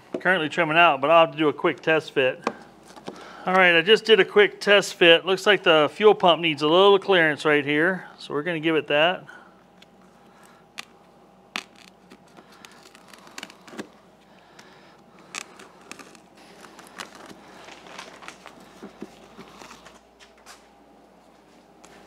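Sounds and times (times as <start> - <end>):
foil mat crinkling and clicking: 11.6 - 20.4.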